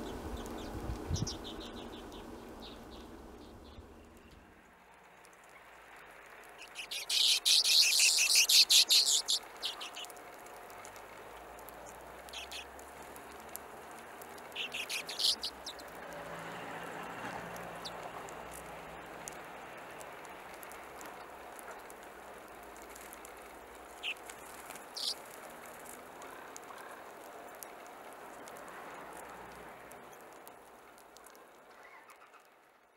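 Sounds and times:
birds chattering calls: 0:00.0 - 0:04.5, 0:06.6 - 0:10.2, 0:11.8 - 0:12.8, 0:14.3 - 0:16.0, 0:23.9 - 0:25.9.

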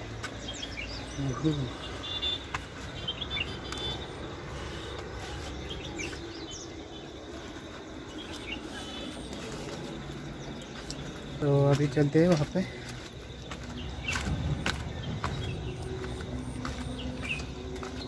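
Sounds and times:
small birds chirping: 0:00.0 - 0:18.0
steady low rumble: 0:12.8 - 0:18.0.

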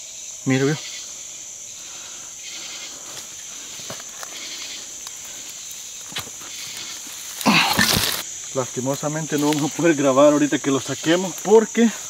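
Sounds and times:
night insect chorus: 0:00.0 - 0:12.0
clicks and rustles in vegetation: 0:03.0 - 0:10.0.

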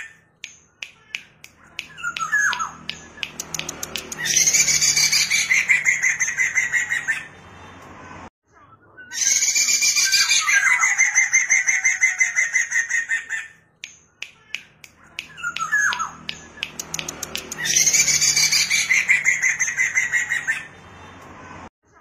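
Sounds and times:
bird singing fast repeated notes: 0:00.0 - 0:07.4, 0:14.0 - 0:21.0
sharp clicks: 0:00.4 - 0:04.5, 0:13.8 - 0:18.0.

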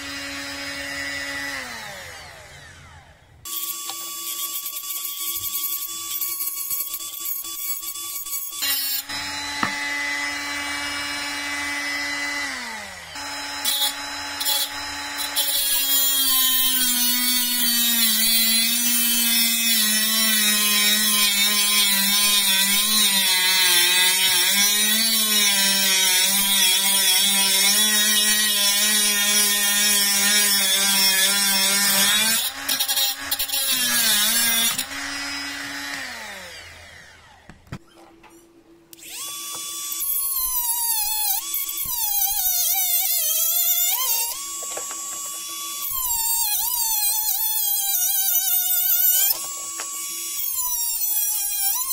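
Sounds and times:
angle grinder motor whine: 0:00.0 - 0:19.2, 0:32.4 - 0:37.6, 0:38.9 - 0:51.9.

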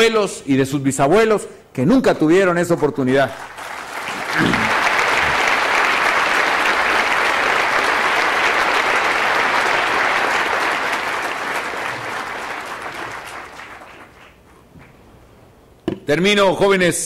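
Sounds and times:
large audience applauding: 0:03.4 - 0:15.0.

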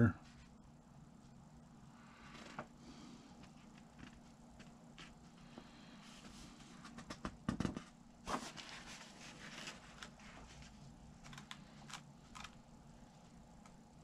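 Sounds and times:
paper rustling and crinkling: 0:06.2 - 0:12.5
booklet pages turning: 0:06.2 - 0:12.6.

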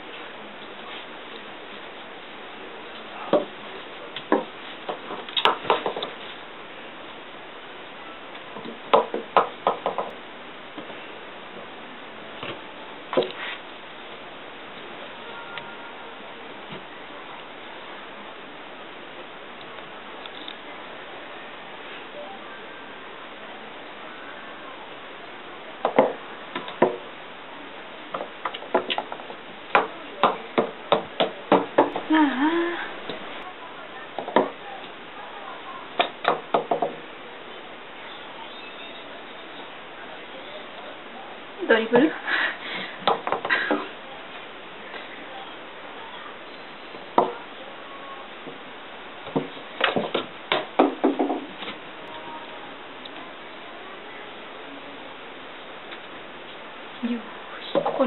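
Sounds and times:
ball knocking on wooden stairs: 0:04.3 - 0:06.2, 0:28.1 - 0:32.1, 0:36.0 - 0:37.0, 0:49.3 - 0:51.8.

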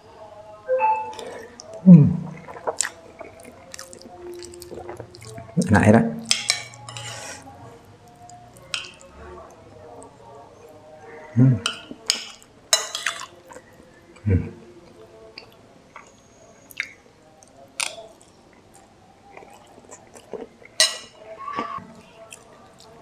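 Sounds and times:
person chewing: 0:01.1 - 0:05.6, 0:17.8 - 0:20.8
cutlery scraping in bowl: 0:06.2 - 0:07.4, 0:11.7 - 0:13.3.

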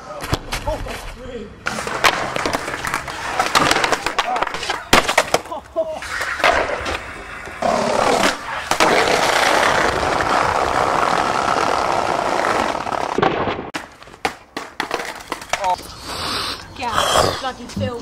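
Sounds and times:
skateboard wheels rolling on brick: 0:00.3 - 0:15.9
skateboard clacks and slaps: 0:01.7 - 0:15.8.

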